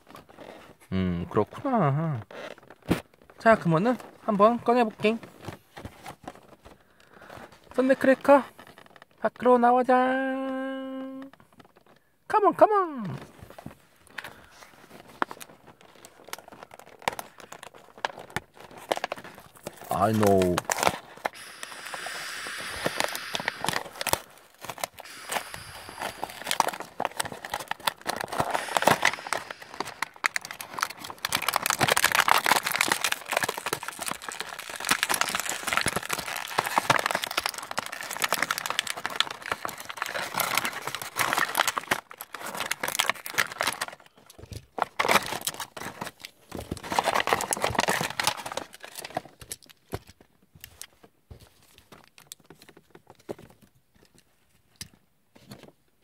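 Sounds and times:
plastic packaging crinkling: 13.2s - 51.0s.

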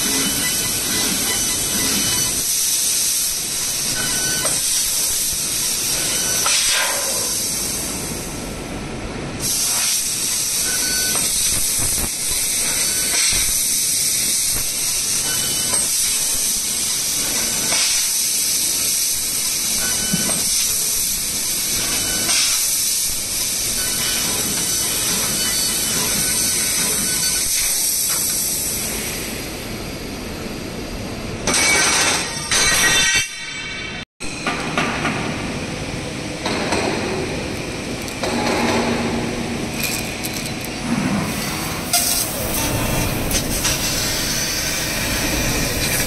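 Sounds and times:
laser cutter gas hiss: 0.0s - 8.5s, 9.4s - 29.6s, 41.2s - 46.0s.

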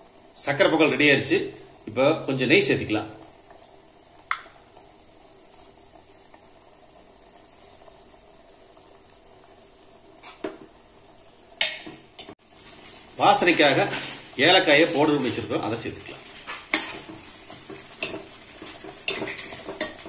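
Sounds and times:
bubbling hiss: 0.0s - 20.0s
ladle scraping metal pot: 16.3s - 20.0s.

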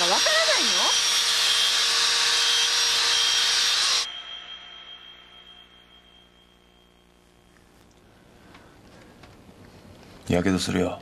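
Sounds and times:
faint high thin tone: 4.0s - 8.0s.

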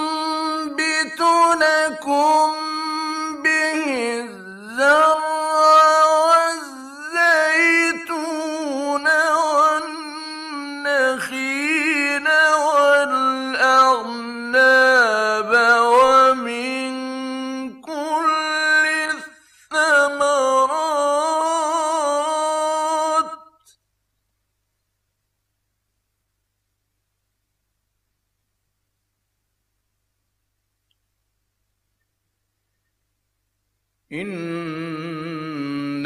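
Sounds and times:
man chanting melodically: 0.0s - 23.6s, 34.1s - 36.0s.

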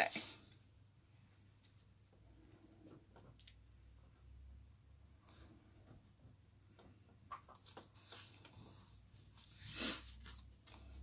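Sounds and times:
cardstock rustling and ticking: 6.7s - 9.4s.

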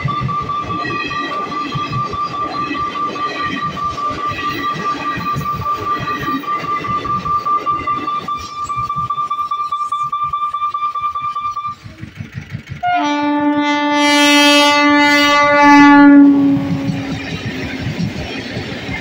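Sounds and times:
steady high tone: 0.0s - 12.0s, 13.0s - 17.7s
train wheels clattering: 10.9s - 19.0s
train horn: 12.8s - 17.3s.

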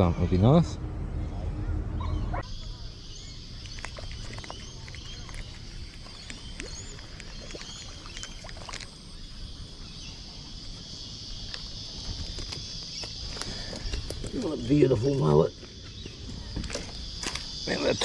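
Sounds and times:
faint chirps: 0.0s - 18.0s
low rumble: 0.6s - 2.4s.

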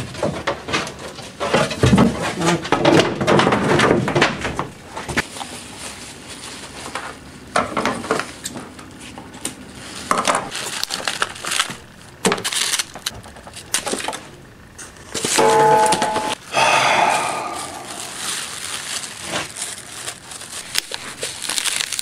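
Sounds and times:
plastic sheeting rustling: 17.0s - 22.0s.

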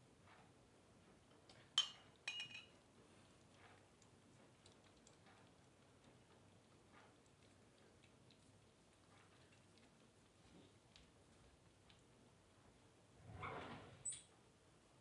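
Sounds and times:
glass bowl clinking down: 1.8s - 2.8s
kittens lapping milk: 2.8s - 13.0s.

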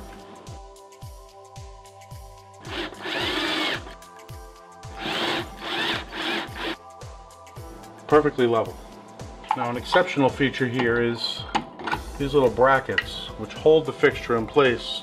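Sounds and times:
cordless drill driving a screw: 2.6s - 4.0s, 5.0s - 6.8s.

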